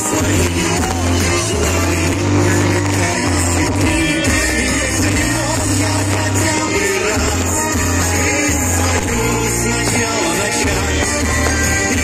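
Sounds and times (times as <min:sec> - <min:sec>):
pop ballad music: 0:00.0 - 0:12.0.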